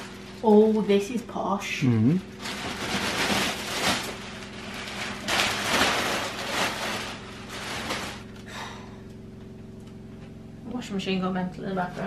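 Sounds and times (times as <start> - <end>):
washing machine humming: 0.0 - 12.0
plastic bag rustling and crinkling: 2.2 - 8.4.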